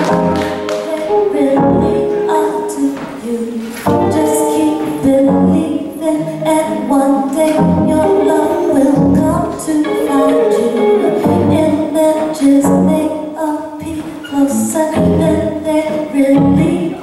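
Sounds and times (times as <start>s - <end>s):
guitar: 0.0s - 17.0s
stage piano: 0.0s - 17.0s
woman singing: 0.0s - 17.0s.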